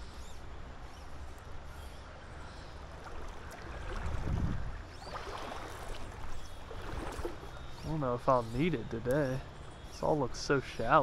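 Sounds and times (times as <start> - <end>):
rippling river rushing: 2.9 - 7.5
wind buffeting microphone: 3.1 - 7.5.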